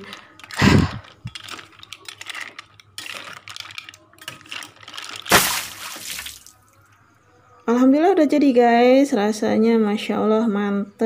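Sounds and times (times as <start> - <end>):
mussel shells clattering in a pan: 0.0 - 6.5.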